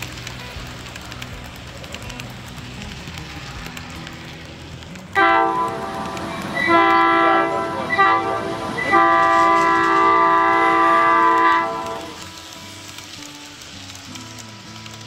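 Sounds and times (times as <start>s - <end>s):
locomotive horn blasts: 5.2s - 12.2s.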